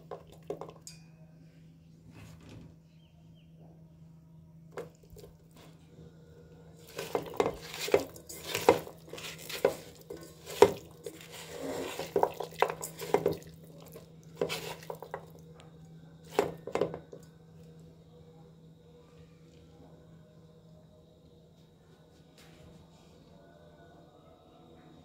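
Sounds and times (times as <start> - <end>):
food mixed by hand in metal pot: 6.8 - 15.6, 16.2 - 17.3.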